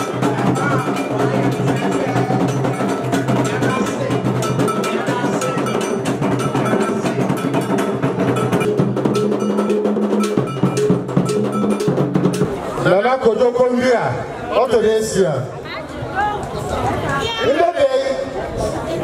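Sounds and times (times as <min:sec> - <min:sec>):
iron bell striking: 0:00.0 - 0:12.5
drum ensemble playing fast rhythm: 0:00.0 - 0:15.5.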